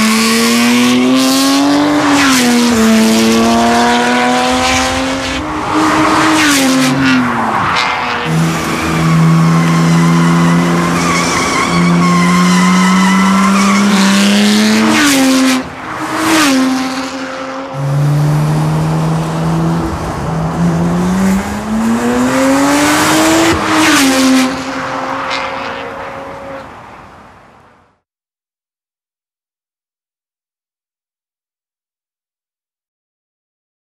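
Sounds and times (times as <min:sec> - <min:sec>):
car engine revving hard: 0:00.0 - 0:25.9.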